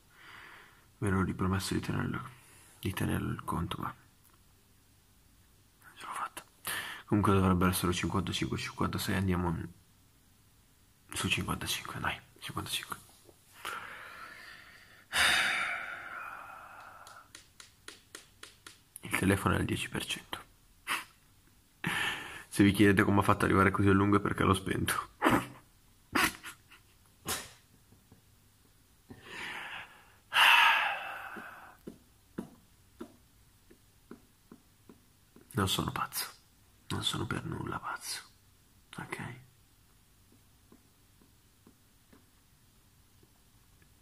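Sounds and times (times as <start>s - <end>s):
man breathing in: 0.1s - 0.9s, 13.6s - 17.3s, 29.1s - 31.8s
man sighing heavily: 13.6s - 17.3s, 29.1s - 31.8s.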